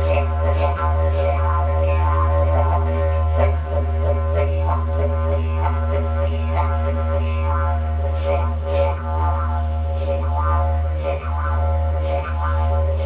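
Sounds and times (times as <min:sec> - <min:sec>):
didgeridoo drone: 0:00.0 - 0:13.0.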